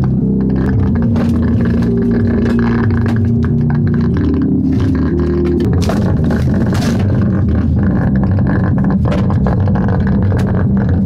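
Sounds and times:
bass-heavy music: 0:00.0 - 0:11.0
harsh crackling noise: 0:00.0 - 0:11.0.

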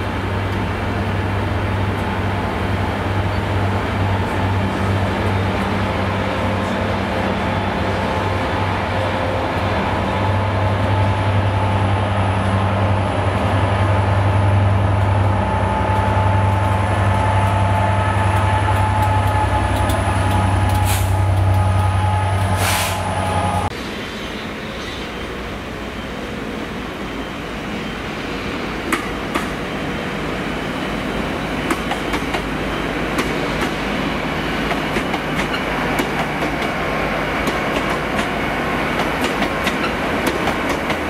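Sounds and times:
diesel locomotive engine drone: 0:00.0 - 0:41.0
air hissing: 0:22.4 - 0:23.6.

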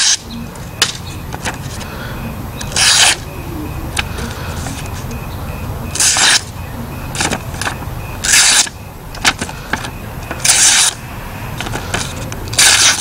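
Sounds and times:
blade slicing paper: 0:00.0 - 0:00.2, 0:02.7 - 0:03.2, 0:05.9 - 0:06.5, 0:07.2 - 0:11.0, 0:11.6 - 0:13.0
steady low rumble: 0:00.4 - 0:10.4.

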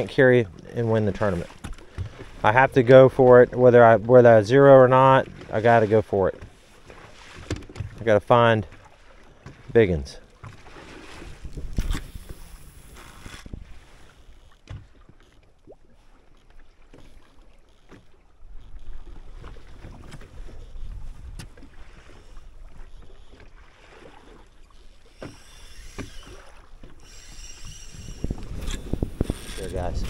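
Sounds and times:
water slapping boat hull: 0:00.0 - 0:30.0
fishing reel ticking: 0:11.8 - 0:14.6, 0:24.6 - 0:30.0.

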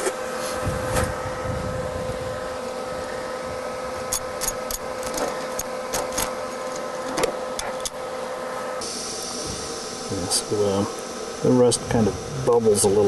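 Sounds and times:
welding arc buzzing: 0:08.8 - 0:13.0.

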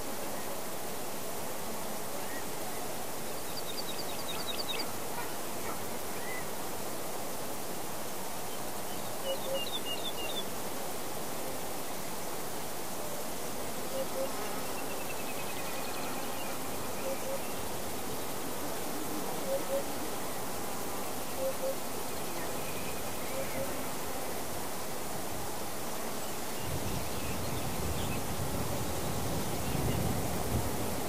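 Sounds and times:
insects buzzing: 0:00.0 - 0:31.0
songbirds chirping: 0:00.0 - 0:31.0.

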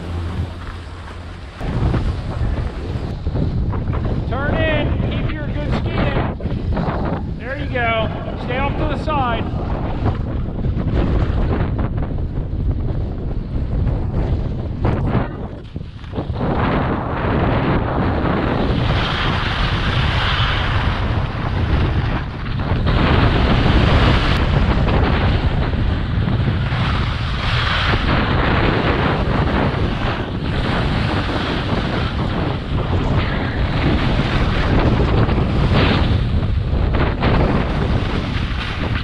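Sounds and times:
wind buffeting microphone: 0:00.0 - 0:39.0
skis sliding over packed snow: 0:15.5 - 0:39.0.

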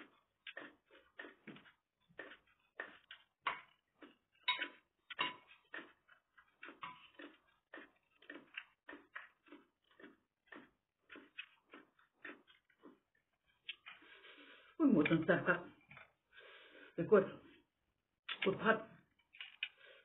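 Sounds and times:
chewing: 0:00.0 - 0:14.8
metal spoon in small bowl: 0:04.4 - 0:05.5.

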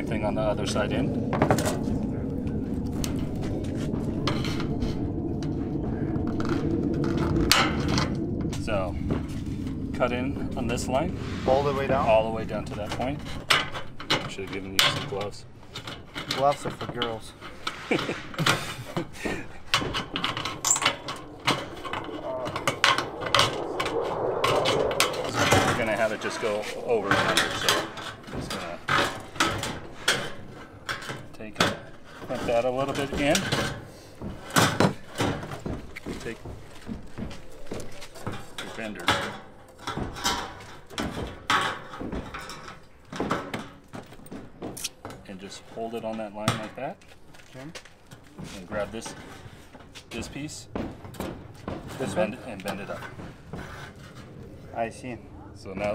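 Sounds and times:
sheet metal rattling and clanking: 0:00.0 - 0:37.5, 0:38.2 - 0:44.8.

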